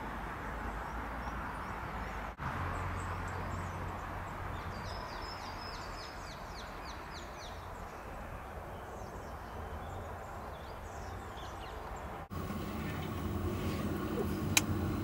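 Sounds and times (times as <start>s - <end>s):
birds singing: 0.7s - 15.0s
low background rumble and hum: 12.3s - 15.0s.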